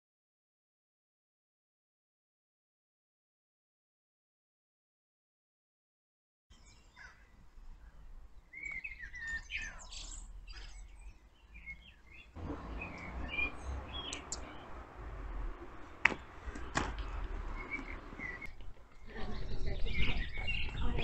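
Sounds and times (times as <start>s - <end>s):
songbirds chirping: 6.5s - 21.0s
low steady rumble: 12.4s - 18.5s.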